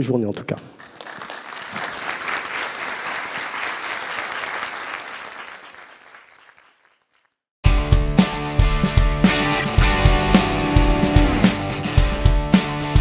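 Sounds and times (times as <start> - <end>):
audience applauding: 0.8 - 7.3
music: 7.6 - 13.0.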